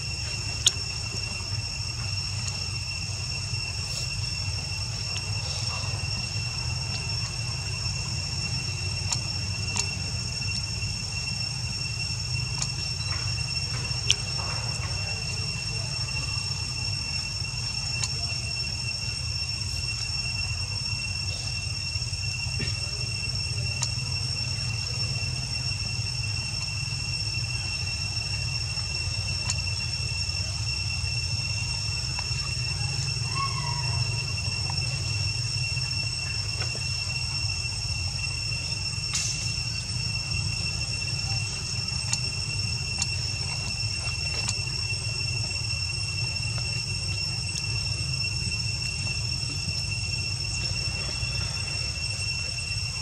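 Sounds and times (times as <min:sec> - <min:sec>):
shrill insect drone: 0:00.0 - 0:53.0
faint clicks: 0:08.6 - 0:10.6, 0:39.1 - 0:39.7, 0:41.1 - 0:47.8.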